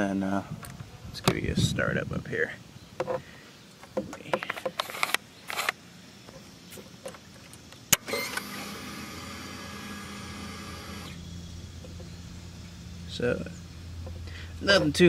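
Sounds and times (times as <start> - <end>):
electric fuel pump humming: 7.5 - 15.0.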